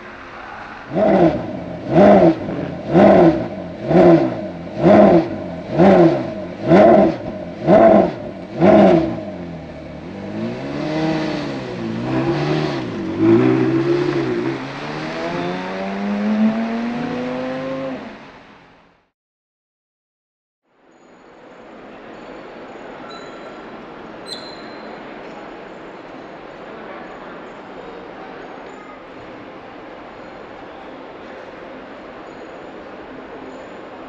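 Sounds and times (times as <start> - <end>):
car driving off: 0.0 - 18.8
sports car engine revving: 0.9 - 18.3.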